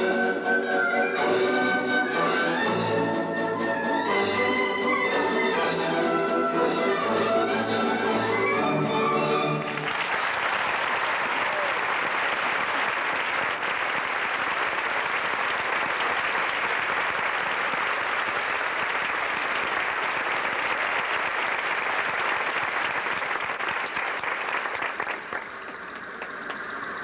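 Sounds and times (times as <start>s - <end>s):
audience applauding: 6.9s - 27.0s.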